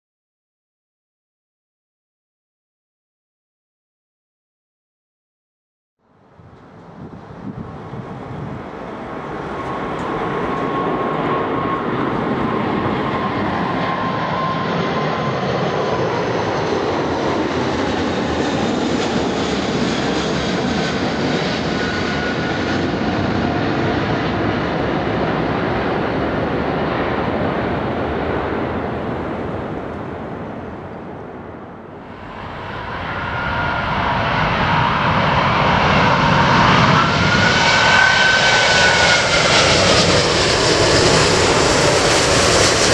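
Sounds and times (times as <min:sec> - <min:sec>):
jet engine whine: 0:06.2 - 0:42.9
jet engine roar: 0:06.4 - 0:42.9.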